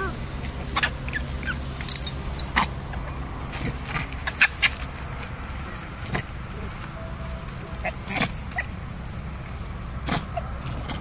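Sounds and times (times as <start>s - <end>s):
animal squeaks and chirps: 0.6s - 3.1s.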